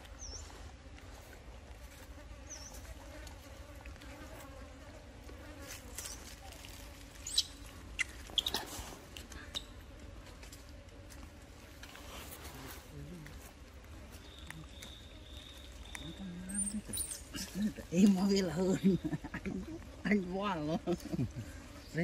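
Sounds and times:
fly buzzing: 0:00.0 - 0:22.0
dry leaves crackling: 0:05.6 - 0:09.4, 0:10.2 - 0:19.3.

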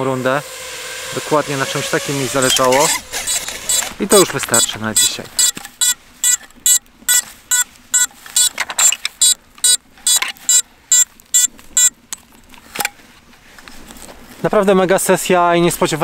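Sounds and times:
quadcopter beeping: 0:00.0 - 0:04.0, 0:04.6 - 0:11.9.

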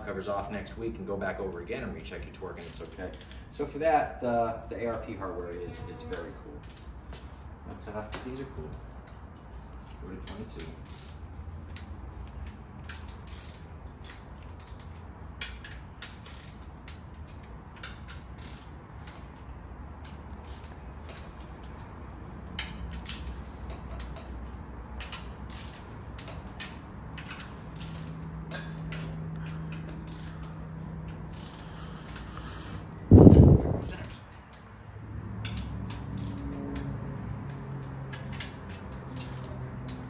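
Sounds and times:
torque wrench ratcheting clicks: 0:10.2 - 0:21.9, 0:22.5 - 0:34.6, 0:35.4 - 0:40.0.

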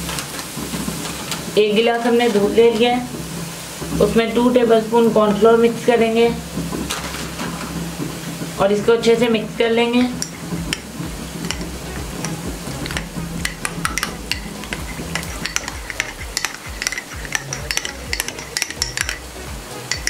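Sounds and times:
spoon clinking against glass: 0:11.4 - 0:20.0.

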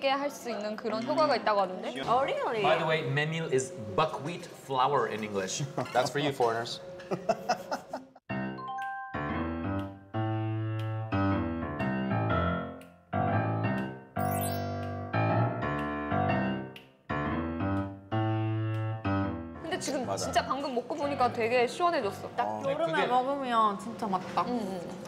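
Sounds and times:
keyboard playing slow chords: 0:08.3 - 0:20.2.

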